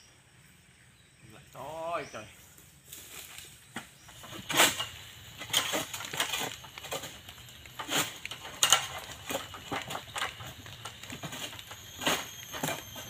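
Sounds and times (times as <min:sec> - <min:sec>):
sickle cutting palm fronds: 0:02.6 - 0:13.0.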